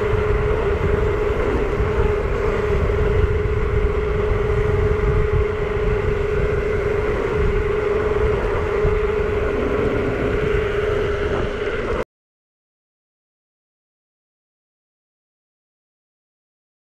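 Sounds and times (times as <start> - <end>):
steady mid-pitched motor whine: 0.0 - 12.0
wind buffeting microphone: 0.0 - 12.0.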